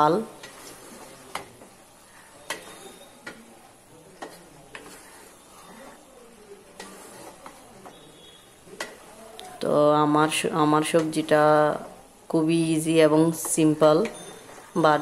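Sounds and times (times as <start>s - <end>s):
faint sizzle: 0.0s - 15.0s
spatula scraping metal pot: 2.1s - 3.4s, 4.2s - 6.1s, 6.7s - 9.0s.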